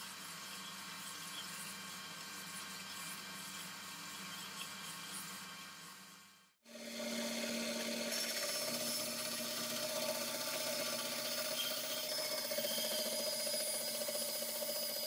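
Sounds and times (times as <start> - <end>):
band saw cutting wood: 6.7 - 15.0.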